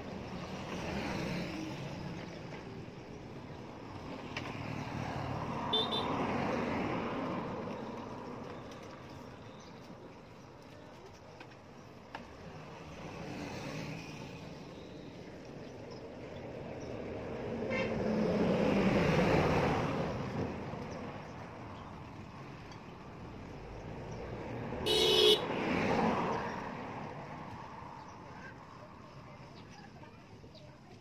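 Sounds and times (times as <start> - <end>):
vehicle passing: 16.5 - 29.6.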